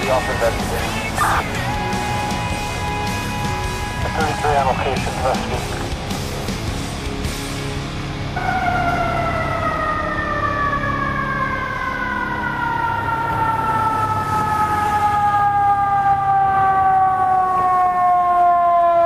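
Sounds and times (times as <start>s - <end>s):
siren winding down: 8.4s - 19.0s.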